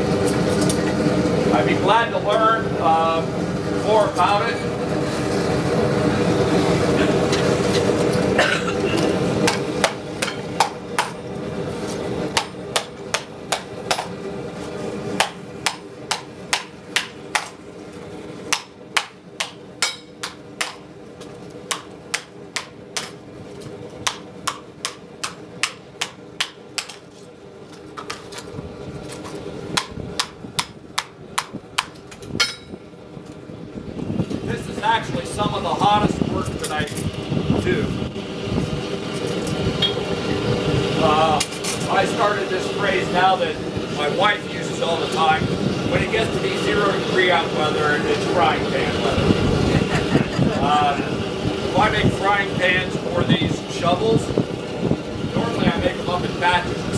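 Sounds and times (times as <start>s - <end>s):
gas forge rushing: 0.0s - 56.9s
hammer striking metal on anvil: 15.2s - 17.6s, 18.5s - 20.8s, 21.7s - 23.2s, 24.0s - 27.0s, 29.8s - 32.7s.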